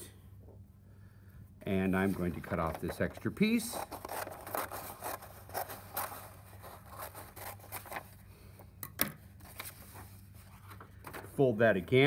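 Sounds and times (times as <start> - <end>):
paper rustling: 2.0 - 8.2, 9.4 - 11.4.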